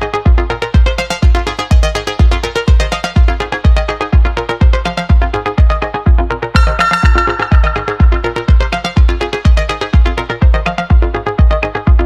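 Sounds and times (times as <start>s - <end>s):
heavy kick drum: 0.3s - 12.0s
short synth notes: 6.6s - 9.4s.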